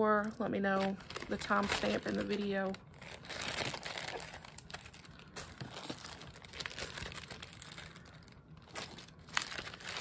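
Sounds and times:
plastic bags crinkling: 0:00.1 - 0:10.0.

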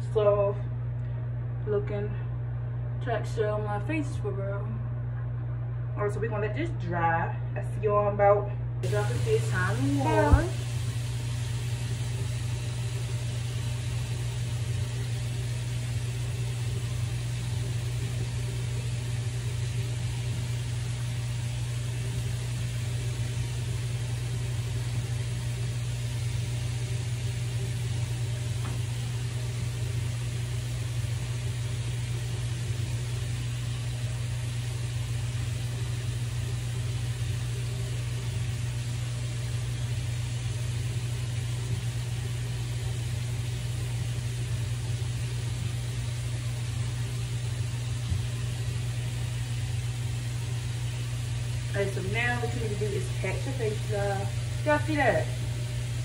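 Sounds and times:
low motor hum: 0:00.0 - 0:56.0
airy hiss: 0:08.8 - 0:14.5.

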